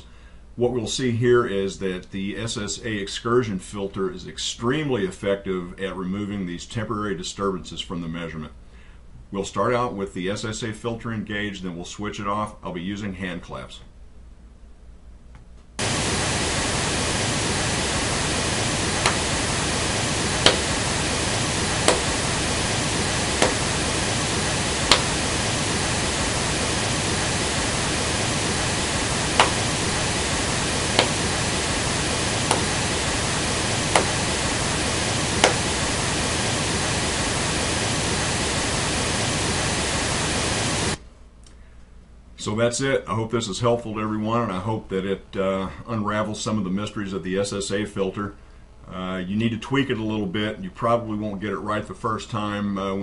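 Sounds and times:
pink noise test signal: 0:15.8 - 0:41.0
hand claps: 0:20.4 - 0:20.7, 0:24.9 - 0:25.2, 0:35.4 - 0:35.6.

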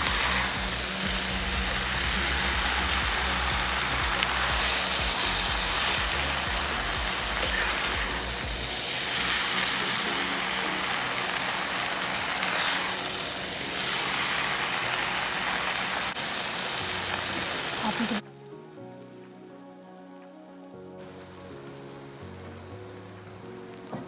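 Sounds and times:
food sizzling in a wok: 0:00.0 - 0:18.2.

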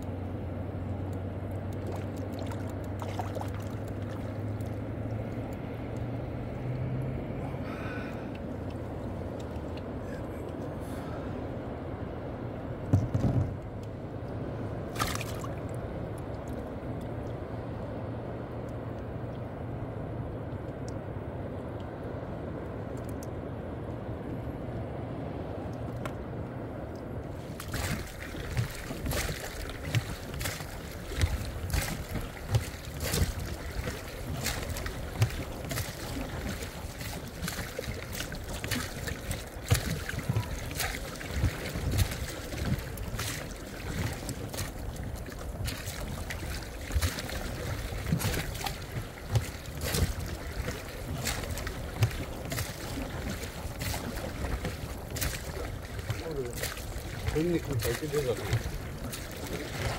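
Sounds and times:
water sloshing and splashing: 0:00.0 - 0:59.9
wind on microphone: 0:27.3 - 0:59.9.

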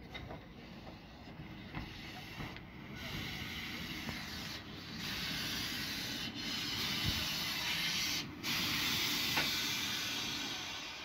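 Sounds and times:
vapour hissing: 0:03.0 - 0:11.0.

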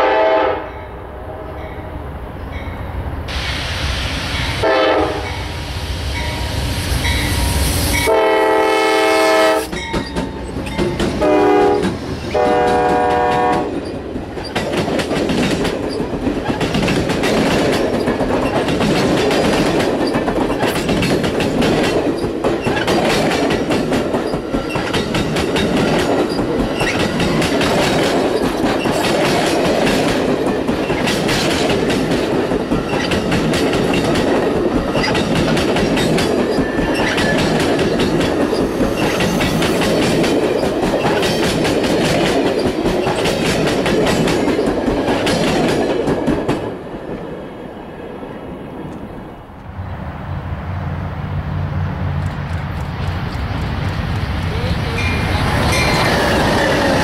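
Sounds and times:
train horn blasts: 0:00.0 - 0:01.5, 0:04.6 - 0:05.5, 0:07.9 - 0:09.7, 0:11.2 - 0:13.8
train wheels clickety-clack: 0:09.3 - 0:47.3, 0:52.1 - 0:57.0.

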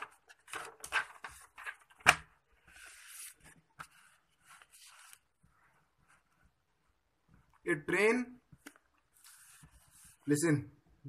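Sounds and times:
paper rustling and sliding: 0:00.0 - 0:06.4, 0:09.1 - 0:10.3.

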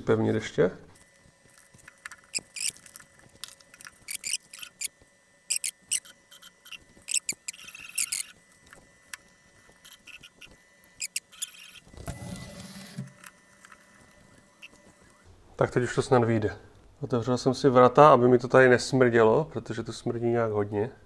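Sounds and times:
rubbing scraping noise: 0:09.8 - 0:13.2.

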